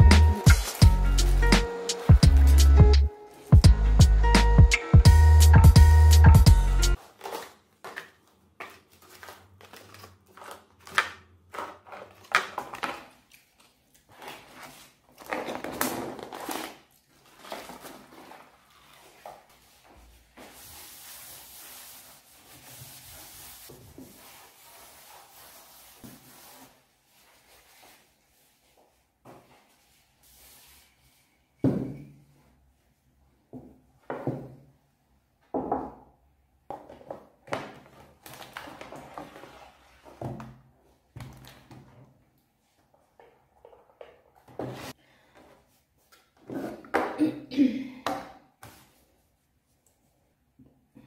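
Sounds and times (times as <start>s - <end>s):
paper packaging rustling: 0.4s - 2.6s, 7.0s - 28.7s, 37.8s - 40.2s.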